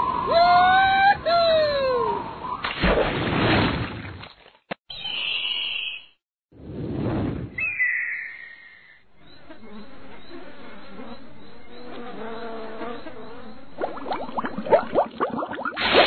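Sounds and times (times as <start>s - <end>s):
insects buzzing: 9.0s - 14.8s.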